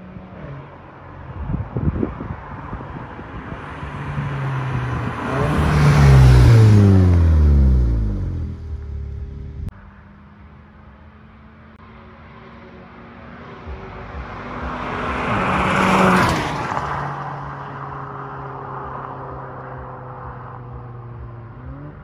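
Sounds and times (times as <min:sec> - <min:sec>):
car engine driving past: 0:03.4 - 0:09.7.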